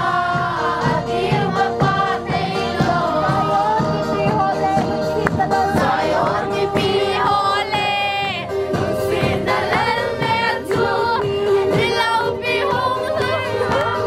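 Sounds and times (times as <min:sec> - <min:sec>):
group singing: 0:00.0 - 0:14.0.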